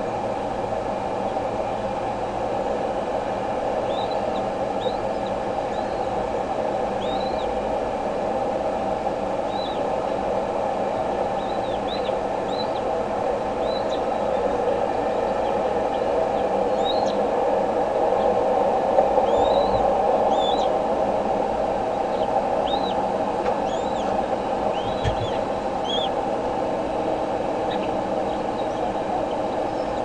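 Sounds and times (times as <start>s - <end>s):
steady rushing noise: 0.0s - 30.0s
eagle chicks chirping: 7.0s - 7.5s, 11.4s - 12.8s, 13.6s - 14.1s, 16.8s - 17.2s, 19.3s - 20.7s, 22.1s - 26.2s, 27.7s - 30.0s.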